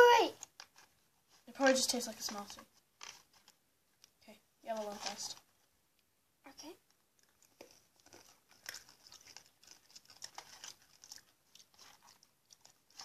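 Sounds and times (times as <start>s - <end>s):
chewing and crunching candy: 2.2s - 3.6s, 6.9s - 13.0s.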